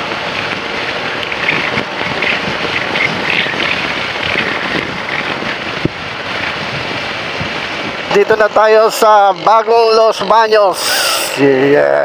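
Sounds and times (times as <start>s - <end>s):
motorcycle engine: 0.0s - 8.1s
wind rushing over microphone: 0.0s - 11.6s.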